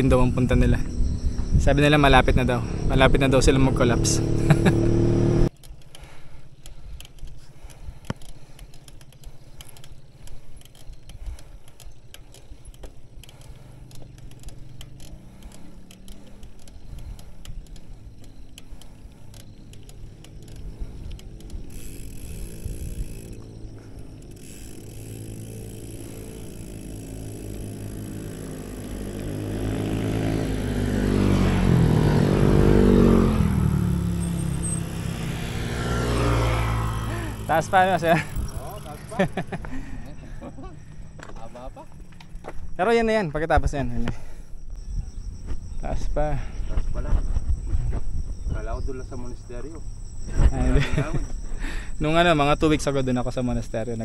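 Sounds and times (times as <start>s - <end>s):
motorcycle engine passing: 0.0s - 5.6s, 11.7s - 42.5s
bicycle rattling clicks: 5.5s - 30.9s, 33.4s - 43.3s.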